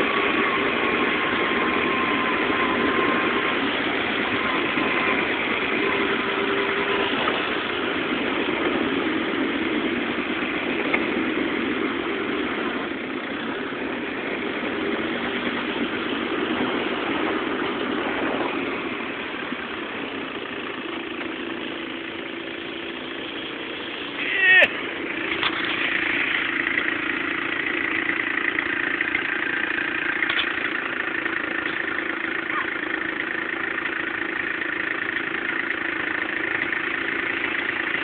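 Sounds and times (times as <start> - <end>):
constant rushing noise: 0.0 - 38.0
small vehicle engine running: 0.0 - 38.0.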